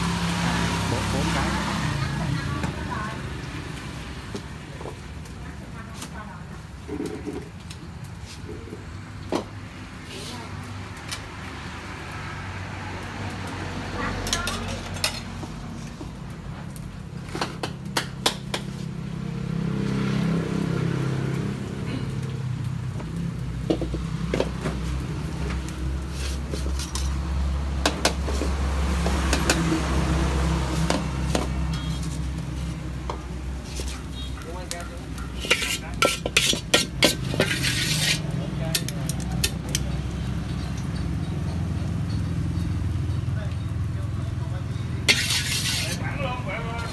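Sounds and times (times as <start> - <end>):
batter sizzling in hot fat: 0.0 - 46.9
metal spatula scraping pans: 14.2 - 15.4, 30.7 - 32.8, 33.6 - 39.8, 45.0 - 46.9.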